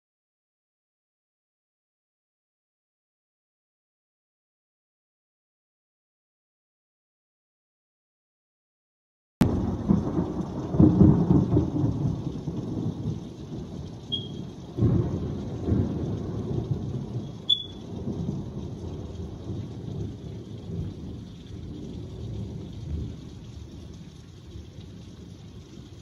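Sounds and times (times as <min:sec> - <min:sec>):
thunder rumbling: 0:09.4 - 0:26.0
rain hissing: 0:09.5 - 0:26.0.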